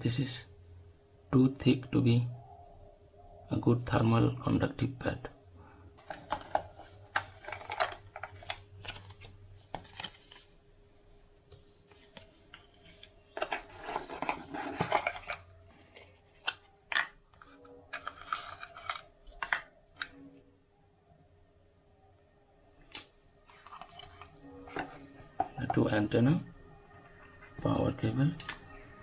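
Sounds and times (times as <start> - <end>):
cardboard rustling and scraping: 12.0 - 17.0.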